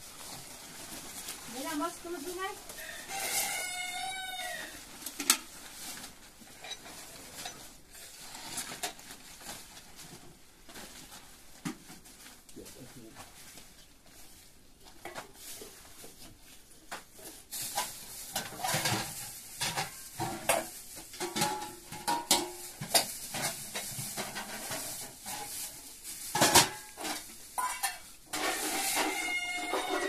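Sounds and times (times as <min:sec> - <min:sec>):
plastic bag crackling: 0:00.0 - 0:11.5, 0:17.2 - 0:21.9, 0:22.6 - 0:30.0.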